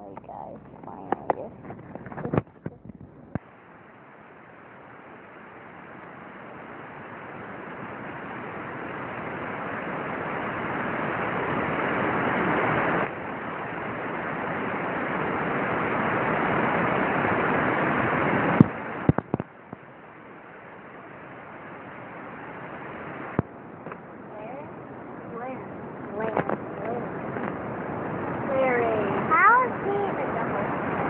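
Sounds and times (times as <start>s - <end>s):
steady rushing noise: 0.0s - 31.0s
sharp clicks or knocks: 18.6s - 19.5s.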